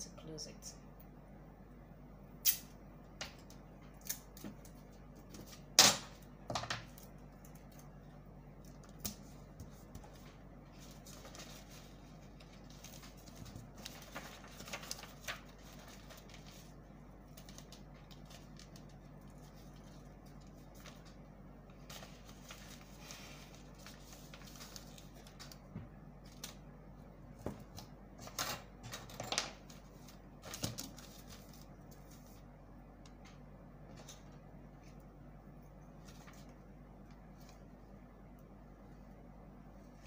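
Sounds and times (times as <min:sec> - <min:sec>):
low steady hum: 0:00.0 - 0:40.0
paper rustling and tapping: 0:08.7 - 0:22.9, 0:23.5 - 0:26.6, 0:27.4 - 0:32.4.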